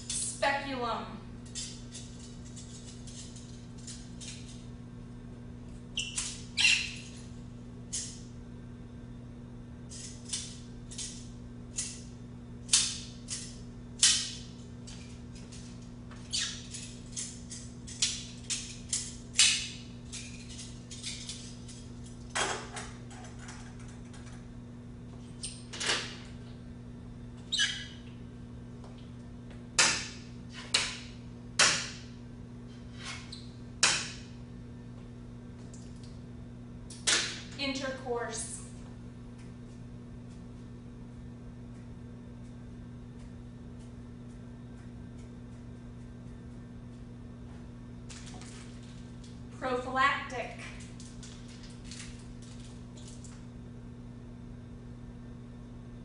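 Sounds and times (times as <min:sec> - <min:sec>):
low electrical hum: 0:00.0 - 0:56.0
small objects clicking and squeaking: 0:06.0 - 0:07.2, 0:15.6 - 0:21.5.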